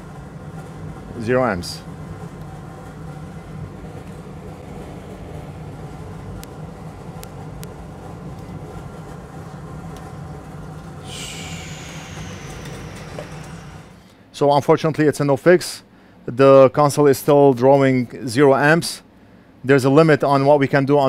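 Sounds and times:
low mechanical hum: 0.0 - 21.0
hiss with falling high whine: 11.0 - 14.0.

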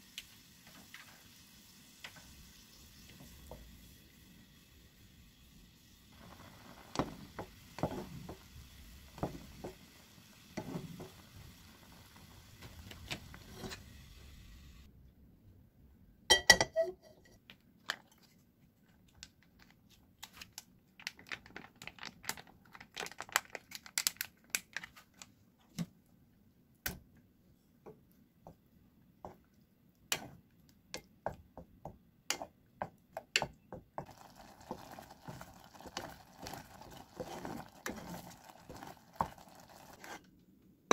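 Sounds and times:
stirring in bubbling sauce: 6.1 - 13.8, 27.9 - 40.3
spatula stirring in boiling water: 6.1 - 14.9, 27.8 - 40.4.

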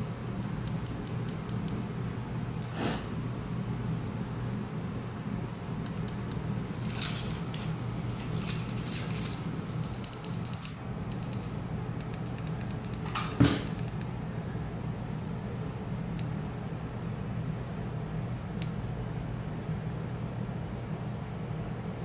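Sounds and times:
steady low hum: 0.0 - 22.0
metallic jingling and clinking: 6.8 - 9.4.

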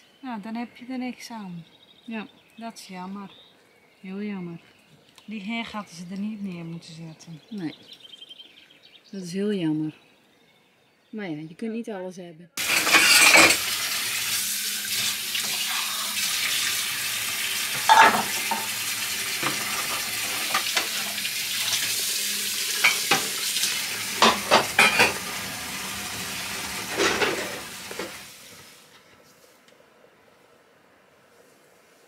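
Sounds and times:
dishes and cutlery clinking: 12.6 - 13.7, 17.7 - 18.8, 22.8 - 23.4, 24.2 - 25.2, 27.0 - 28.2
running tap water: 12.6 - 28.9.

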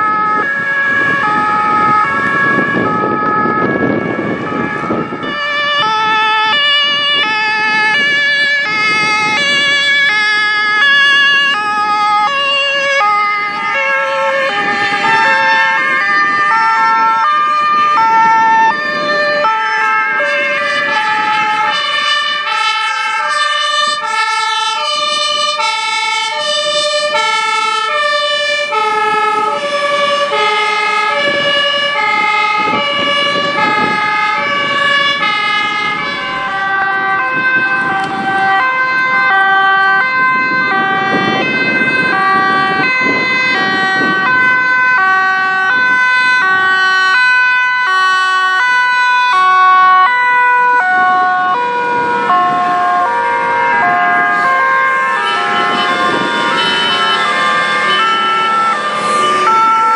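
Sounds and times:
passing vehicle engine and tyres: 0.0 - 59.9
second siren: 0.0 - 59.9
steady siren tone: 0.0 - 59.9
two-tone emergency sirens: 0.0 - 59.9.

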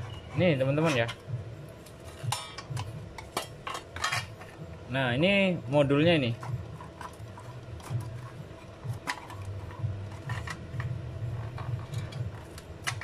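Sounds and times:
clicks and knocks of handled parts: 6.4 - 13.0.

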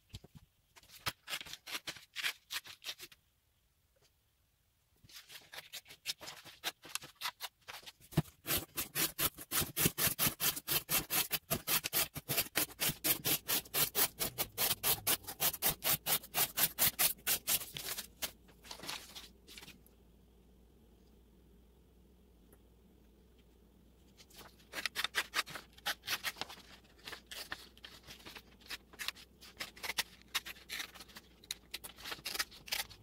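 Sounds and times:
knife slicing cardboard: 8.1 - 18.1.

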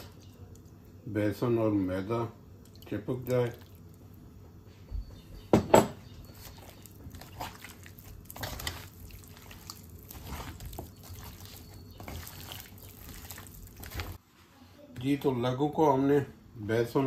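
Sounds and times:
hand squelching in batter: 6.3 - 14.2.

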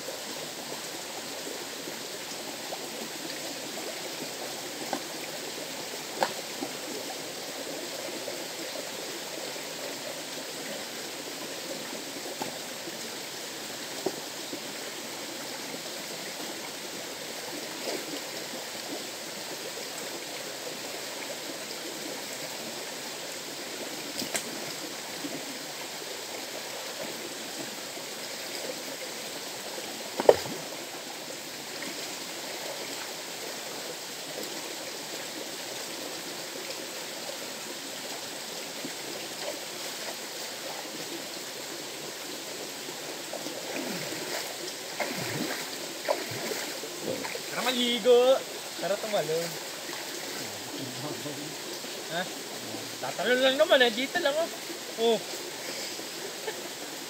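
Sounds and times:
river water flowing: 0.0 - 57.0
sharp knocks or splashes: 30.2 - 30.7.

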